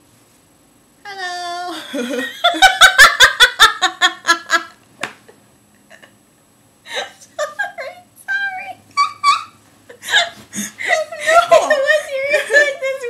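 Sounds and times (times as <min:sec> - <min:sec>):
women laughing: 0:01.7 - 0:04.8, 0:06.9 - 0:08.0, 0:09.0 - 0:13.0.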